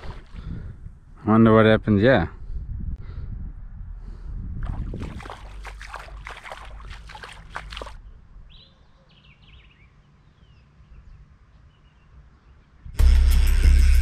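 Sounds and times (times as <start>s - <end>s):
bird chirping: 7.8s - 12.8s.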